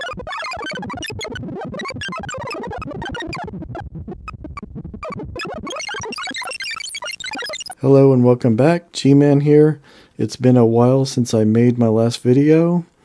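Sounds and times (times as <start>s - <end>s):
fast electronic bleeps: 0.0s - 7.8s.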